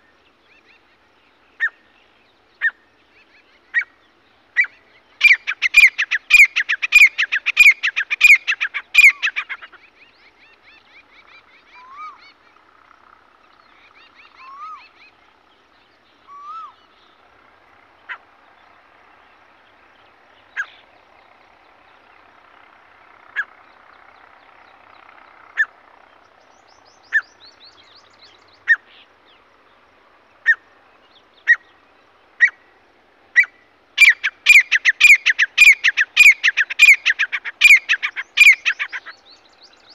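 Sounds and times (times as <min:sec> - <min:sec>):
faint bird chirps: 0:33.4 - 0:39.9.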